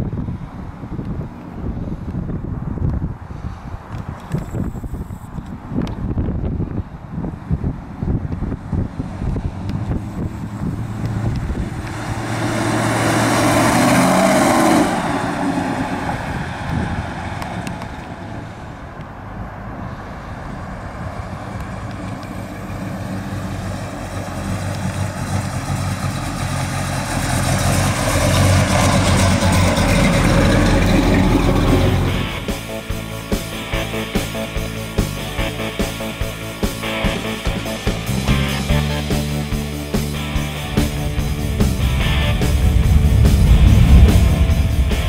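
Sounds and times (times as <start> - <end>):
car engine driving past: 9.0 - 32.9, 39.5 - 45.0.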